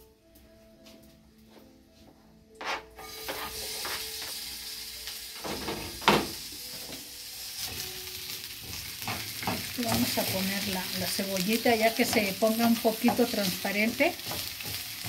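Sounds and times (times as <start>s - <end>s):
onion sizzling in oil: 3.0s - 15.0s
spatula knocking on a pan: 8.6s - 11.0s, 11.6s - 15.0s.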